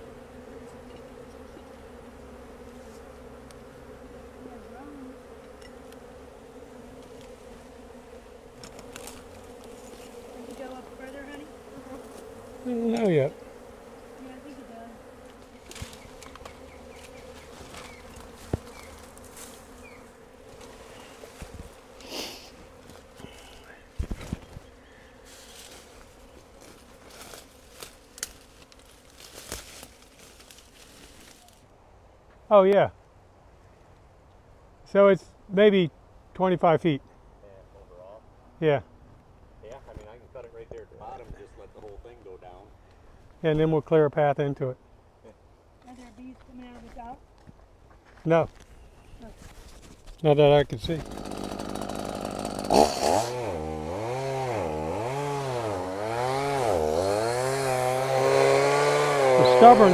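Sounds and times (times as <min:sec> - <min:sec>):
honeybees buzzing: 0:00.0 - 0:31.6, 0:50.3 - 0:59.9
faint rustling and crackling: 0:14.4 - 0:32.4, 0:45.8 - 0:51.0.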